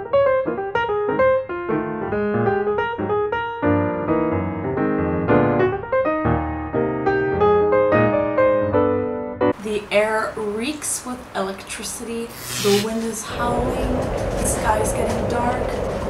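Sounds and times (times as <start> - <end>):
piano music: 0.0 - 9.6.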